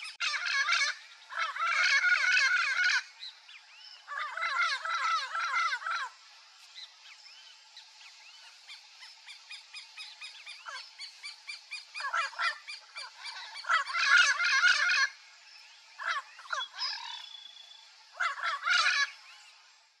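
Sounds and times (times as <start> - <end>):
parrots squawking: 0.0 - 3.2, 3.9 - 6.3, 8.4 - 15.2, 16.0 - 19.4.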